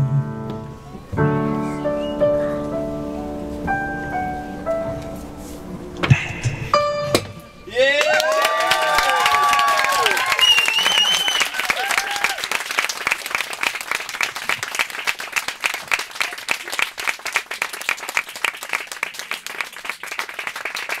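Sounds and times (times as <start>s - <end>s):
audience applauding: 7.7s - 21.0s.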